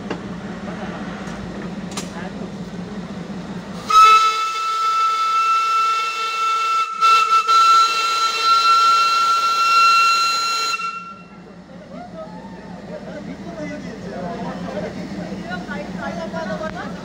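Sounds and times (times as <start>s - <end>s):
steam whistle blast: 3.8s - 11.3s.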